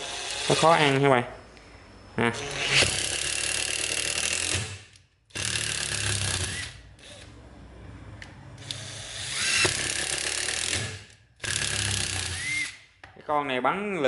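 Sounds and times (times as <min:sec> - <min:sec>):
impact driver hammering screws: 0:02.8 - 0:07.2, 0:08.6 - 0:12.8.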